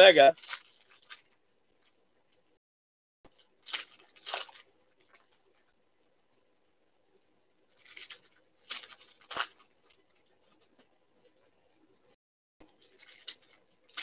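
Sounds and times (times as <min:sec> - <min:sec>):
foil wrappers crinkling and tearing: 0:00.0 - 0:02.0, 0:03.3 - 0:05.6, 0:07.7 - 0:10.9, 0:12.6 - 0:14.0.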